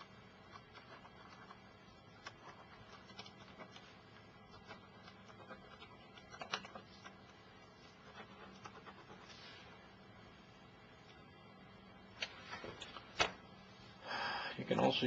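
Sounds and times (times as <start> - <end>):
pen scratching on paper: 0.0 - 9.7.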